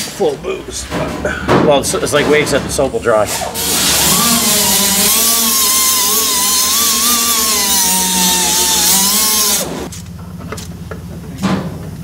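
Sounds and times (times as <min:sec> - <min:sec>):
power tool whining: 0:03.3 - 0:09.9.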